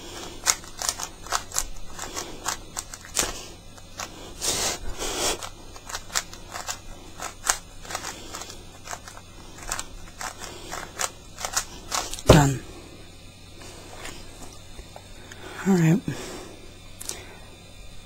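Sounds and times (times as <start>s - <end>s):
rubik's cube clicking: 0.3s - 4.1s, 5.4s - 12.3s
loud thump: 12.2s - 12.6s.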